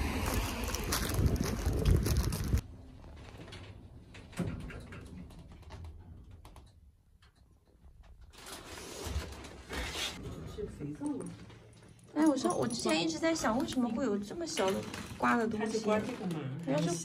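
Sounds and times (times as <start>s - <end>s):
wind on microphone: 0.0s - 2.6s
street noise: 0.0s - 2.7s.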